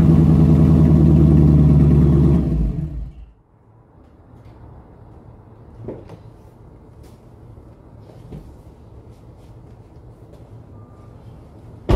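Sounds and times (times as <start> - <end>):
car engine idling: 0.0 - 3.3.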